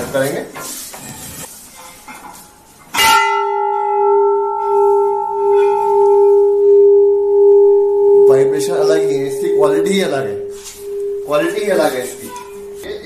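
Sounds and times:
brass bell ringing: 3.0 - 12.9.

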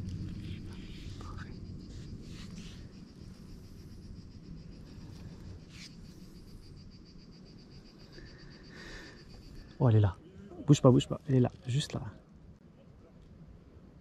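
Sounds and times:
low rumble: 0.0 - 5.6
insect pulsing trill: 0.0 - 11.9.

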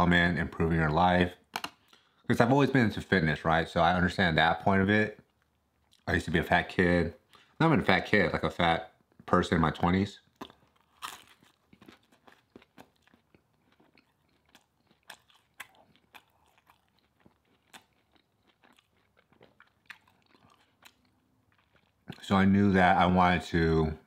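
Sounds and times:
man chewing food: 5.2 - 6.1, 10.2 - 22.2.

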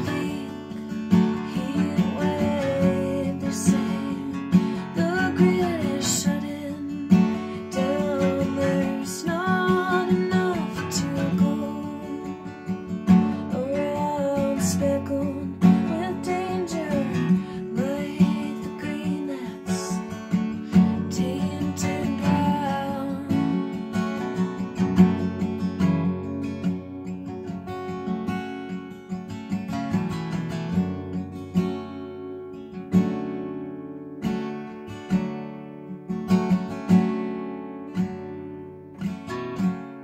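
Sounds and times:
woman singing: 0.0 - 24.3
acoustic guitar strumming: 0.0 - 40.0.

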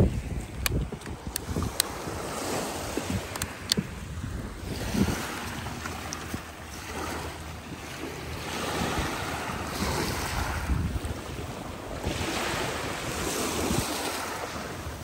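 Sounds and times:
wind buffeting microphone: 0.0 - 15.0
waves washing over pebble beach: 4.6 - 15.0.

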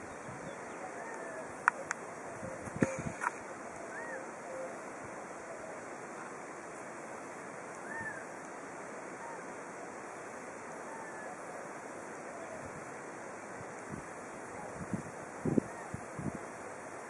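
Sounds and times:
wind rushing on microphone: 0.0 - 3.4, 12.5 - 16.7.

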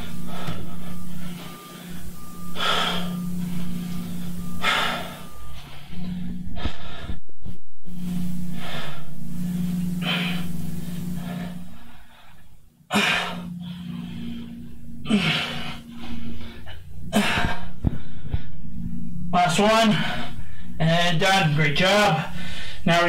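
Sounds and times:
man breathing hard: 0.0 - 7.2, 22.3 - 22.8.

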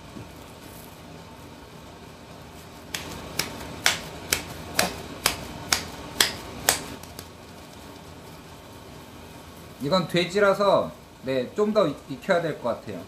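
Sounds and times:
meat slapped between palms: 2.9 - 7.3.

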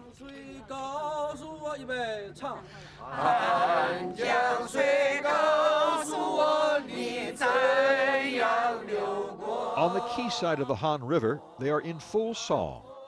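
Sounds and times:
group singing led by woman: 3.0 - 13.0.

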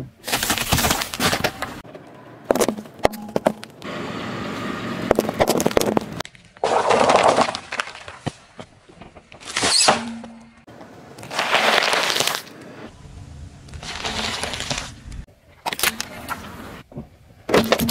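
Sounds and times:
car tyre crushing objects: 0.2 - 3.9, 4.8 - 12.9, 15.6 - 17.9.

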